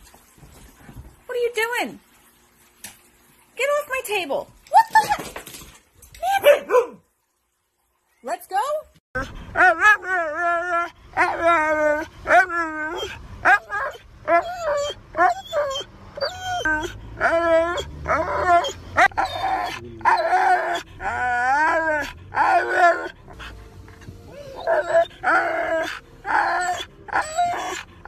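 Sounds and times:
husky howling: 9.5s - 23.5s, 24.3s - 28.0s.

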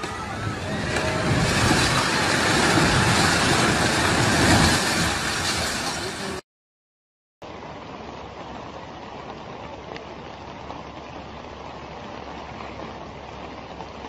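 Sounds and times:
house collapsing crash: 0.0s - 6.2s.

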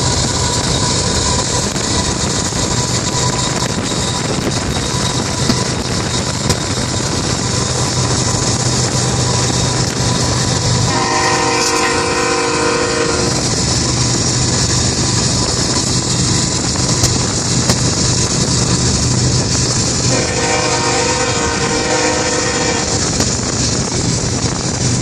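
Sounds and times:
car road and wind noise: 0.0s - 25.0s
locomotive air horn: 10.8s - 13.5s, 20.0s - 23.2s.

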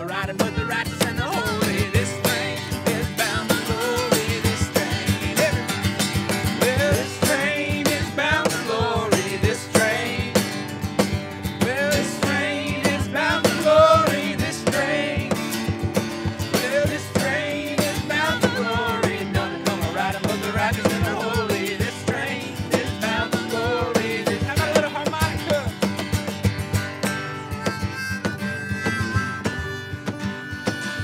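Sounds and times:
voices singing together: 0.0s - 10.7s, 11.6s - 25.6s
acoustic guitars strumming: 0.0s - 31.0s.

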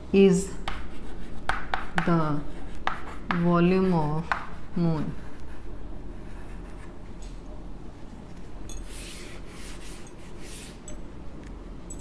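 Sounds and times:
chalk scratching on blackboard: 0.7s - 7.0s, 8.9s - 10.8s.

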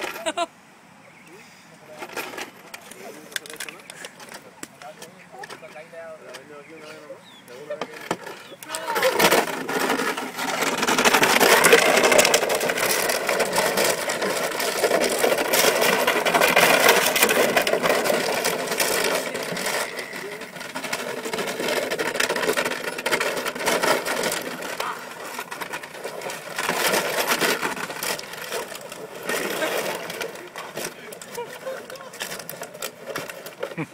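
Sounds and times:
plastic bottles crinkling and clattering: 7.7s - 33.9s.

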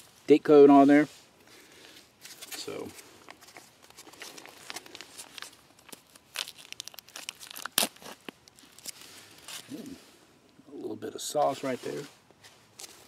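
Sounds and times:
foil pouch tearing and crinkling: 2.3s - 10.0s.

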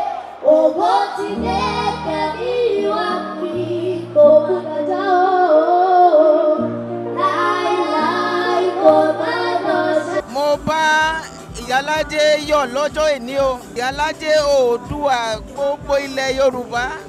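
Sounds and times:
girls singing in harmony: 0.0s - 10.4s
instrumental accompaniment: 6.4s - 17.0s.

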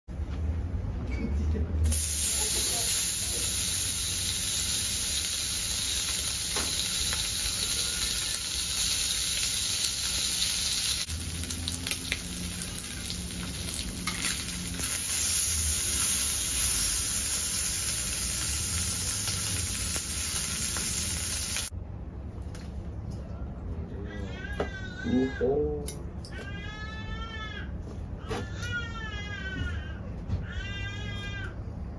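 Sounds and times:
meat sizzling in hot oil: 1.9s - 21.7s.

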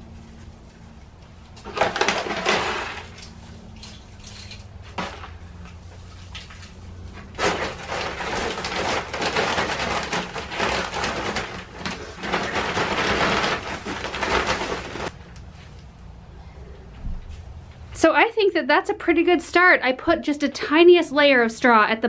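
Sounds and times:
wood bedding pouring onto concrete: 1.6s - 3.3s, 5.0s - 15.2s.

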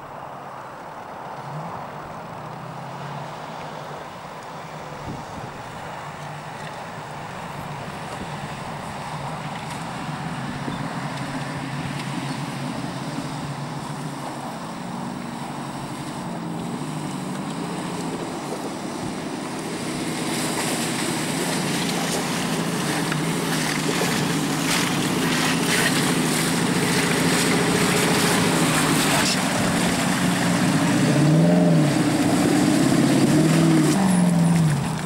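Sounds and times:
off-road vehicle engine: 0.0s - 35.0s.

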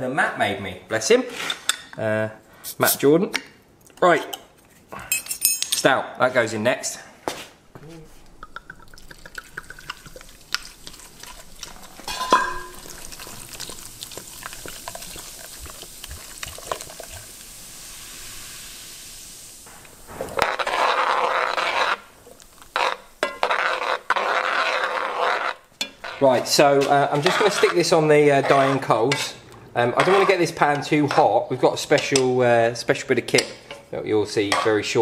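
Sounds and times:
sharp glass clink: 5.1s - 5.8s, 12.1s - 12.8s
liquid pouring into a pot: 8.4s - 25.7s
spoon stirring and scraping pot: 8.6s - 17.4s, 19.7s - 32.4s, 33.3s - 35.0s.

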